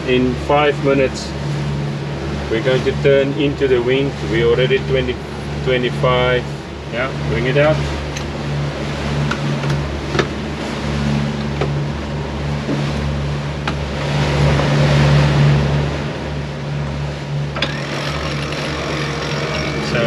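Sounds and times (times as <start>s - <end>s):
diesel engine droning: 0.0s - 20.0s
water noise: 0.0s - 20.0s
wind: 0.0s - 20.0s
winch and rope clutch clicks: 17.5s - 20.0s.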